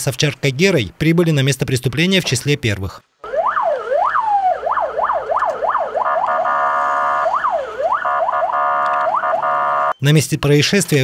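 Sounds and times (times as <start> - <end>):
police siren wailing: 3.2 - 10.0.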